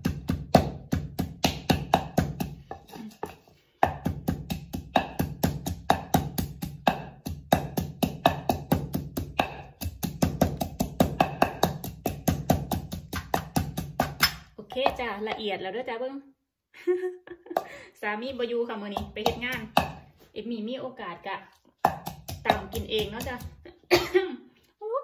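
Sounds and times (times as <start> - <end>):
pestle pounding in mortar: 0.0 - 15.5, 18.3 - 20.1, 21.8 - 23.6.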